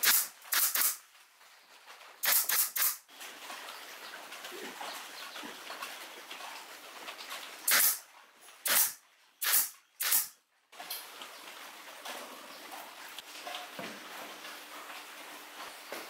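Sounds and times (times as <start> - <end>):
pneumatic nailer air bursts: 0.0 - 1.0, 2.2 - 3.0, 7.7 - 8.0, 8.6 - 10.4.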